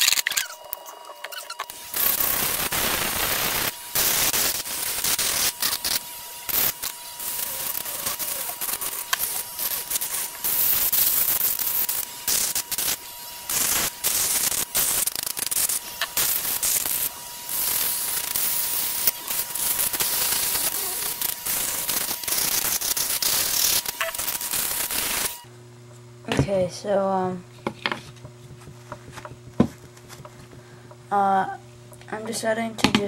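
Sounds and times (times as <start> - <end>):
bit grinding plastic: 0.0 - 25.3
rotary tool whine: 0.0 - 25.5.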